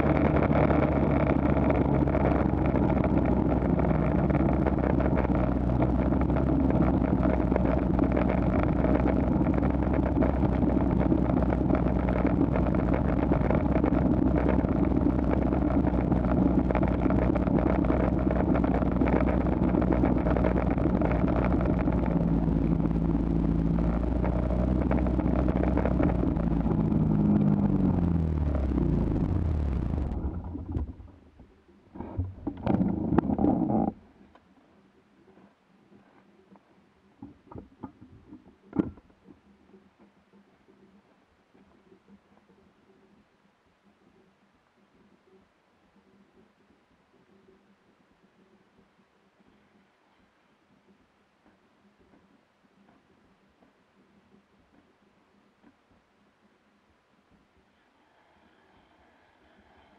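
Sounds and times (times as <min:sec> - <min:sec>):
snow vehicle engine running: 0:00.0 - 0:31.2.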